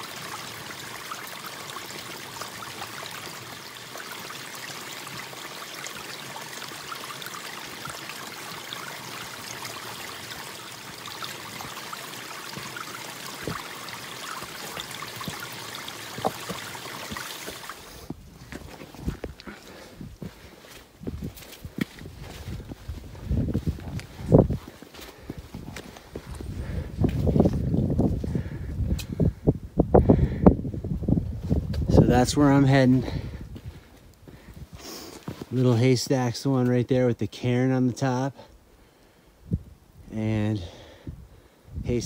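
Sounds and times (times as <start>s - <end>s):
water drips and splashes: 0.0s - 29.2s
water running over rocks: 0.0s - 29.2s, 31.6s - 38.4s
footsteps on rock: 16.1s - 28.2s.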